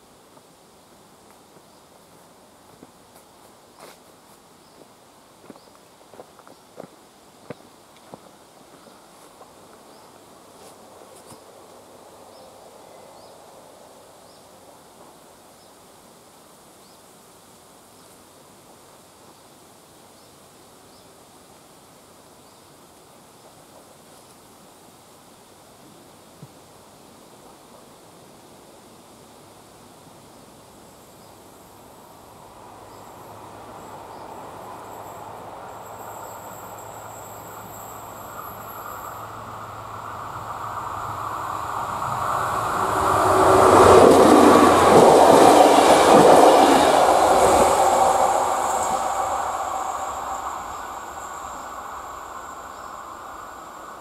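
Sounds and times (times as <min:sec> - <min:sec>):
soft hiss of air and leaves: 0:00.0 - 0:54.0
diesel passenger train approaching: 0:30.8 - 0:54.0
thin high tones: 0:33.0 - 0:54.0.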